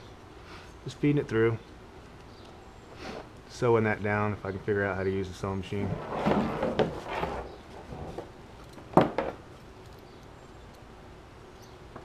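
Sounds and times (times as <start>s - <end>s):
nylon straps rustling and scraping: 5.7s - 8.8s
small ticks: 9.6s - 10.9s.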